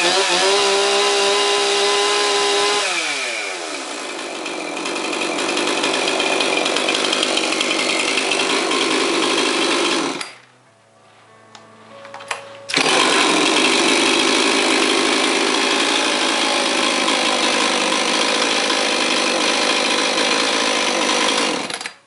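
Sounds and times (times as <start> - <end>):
chainsaw revving: 0.0 - 10.4, 12.7 - 22.0.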